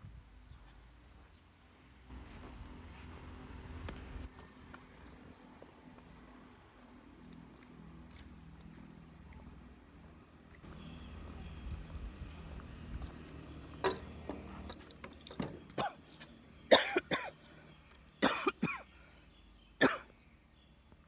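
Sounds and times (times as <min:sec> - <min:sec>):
person coughing: 0:16.7 - 0:17.4, 0:18.2 - 0:18.9, 0:19.8 - 0:20.1.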